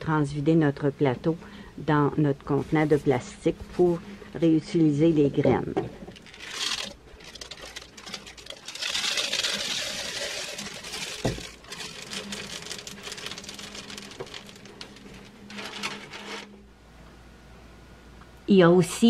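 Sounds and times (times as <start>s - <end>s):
seeds pouring into container: 6.2s - 16.5s.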